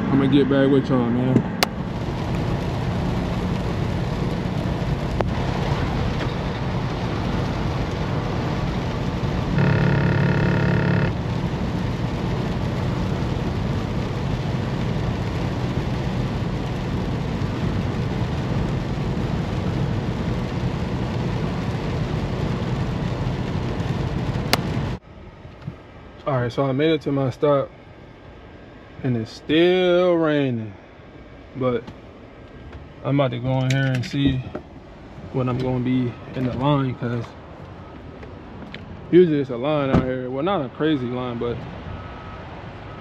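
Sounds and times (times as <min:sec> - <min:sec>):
truck engine and tyres: 0:00.0 - 0:43.0
rain: 0:01.6 - 0:25.0, 0:34.9 - 0:43.0
held multi-pitch horn tone: 0:09.5 - 0:11.2.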